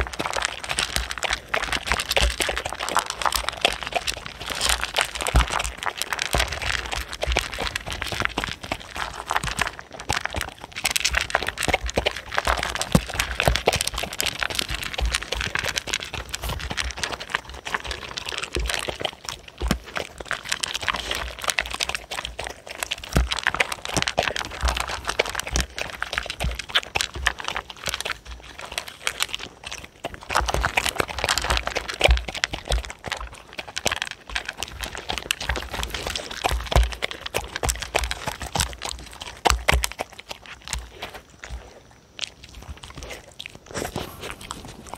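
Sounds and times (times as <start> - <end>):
dogs crunching dry kibble: 0.0 - 44.9.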